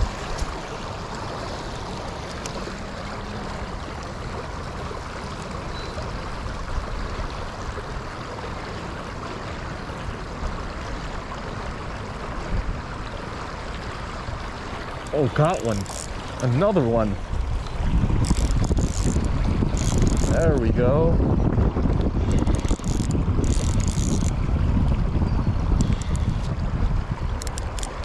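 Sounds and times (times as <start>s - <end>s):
water pouring over spillway: 0.0s - 28.0s
wind buffeting microphone: 15.1s - 28.0s.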